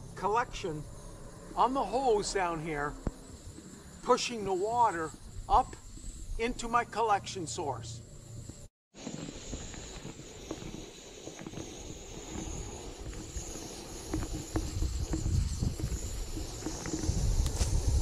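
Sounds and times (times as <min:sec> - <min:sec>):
wind rumbling on microphone: 0:02.2 - 0:06.5, 0:08.4 - 0:18.0
camp stove burner hissing: 0:08.0 - 0:18.0.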